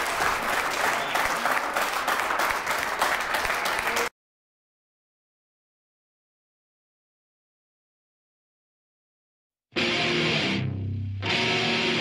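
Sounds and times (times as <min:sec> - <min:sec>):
crowd clapping: 0:00.0 - 0:04.1.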